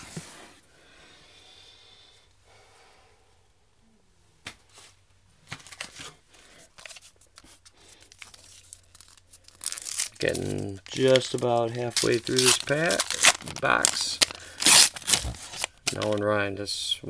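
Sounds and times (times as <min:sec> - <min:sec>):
card pack rustling: 0:05.5 - 0:16.3
clicks and crinkles of foil pack: 0:08.0 - 0:16.3.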